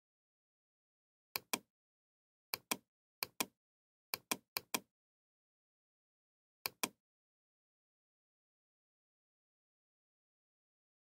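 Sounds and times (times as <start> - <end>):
computer mouse double clicks: 6.7 - 7.0.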